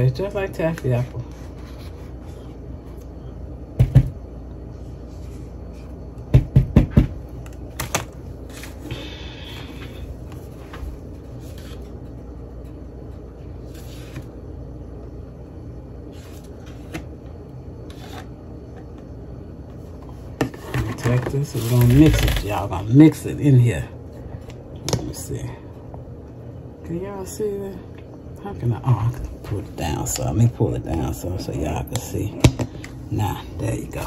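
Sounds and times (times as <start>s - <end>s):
steady low hum: 0.0s - 34.0s
knocks and taps on plastic tub: 6.3s - 7.1s.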